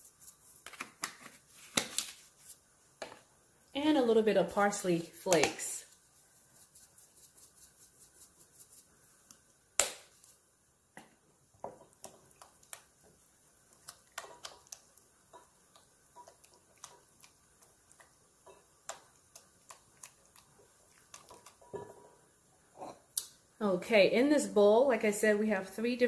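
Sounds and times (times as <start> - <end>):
spatula stirring in glass bowl: 5.6 - 9.4, 11.8 - 22.2.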